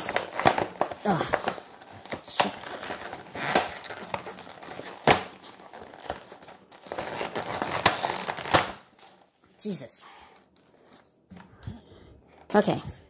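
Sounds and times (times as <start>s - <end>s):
plastic packaging crinkling: 0.0s - 9.4s.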